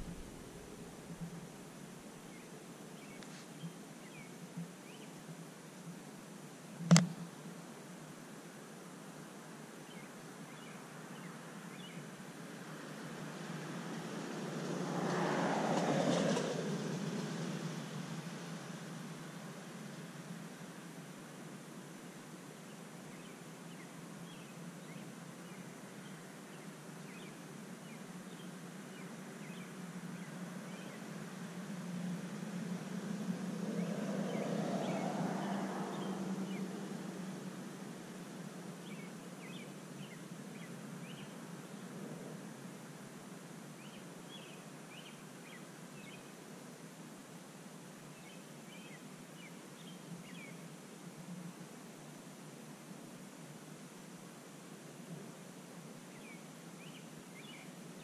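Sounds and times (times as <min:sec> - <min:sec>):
steady low hum: 0:00.0 - 0:02.5
steady hiss: 0:00.0 - 0:13.3, 0:36.4 - 0:58.0.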